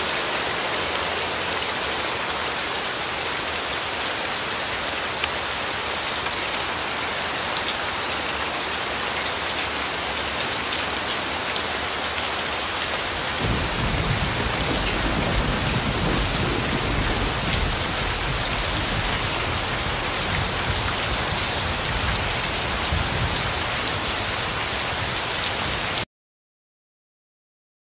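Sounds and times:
rain on hard surfaces: 0:00.0 - 0:26.1
thunder rumbling: 0:13.4 - 0:24.1.

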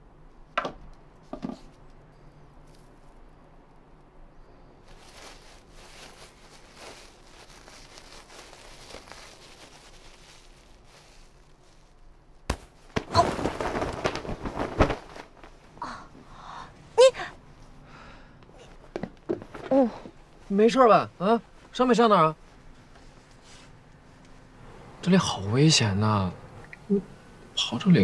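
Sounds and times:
faint rustling: 0:04.8 - 0:16.3
sharp crack: 0:12.5 - 0:15.3.

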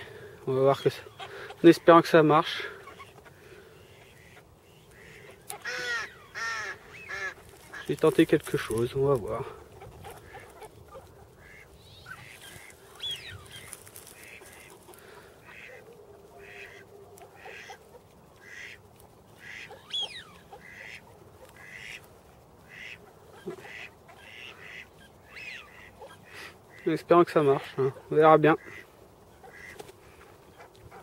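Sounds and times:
ducks quacking: 0:00.0 - 0:31.0
duck rising and falling call: 0:02.8 - 0:07.9.

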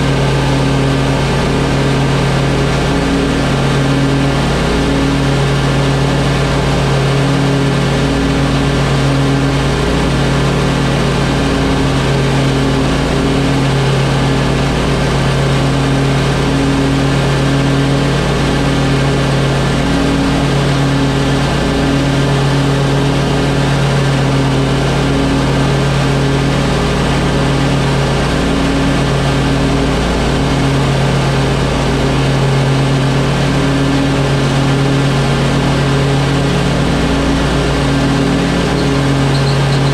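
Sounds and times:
lawn mower engine running: 0:00.0 - 0:39.9.

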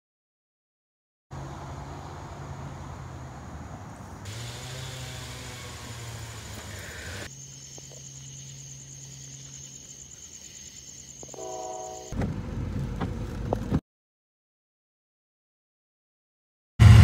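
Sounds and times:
low engine hum: 0:01.3 - 0:09.0, 0:12.1 - 0:13.8
crickets chirping: 0:06.9 - 0:12.2
train horn blast: 0:11.3 - 0:12.2.

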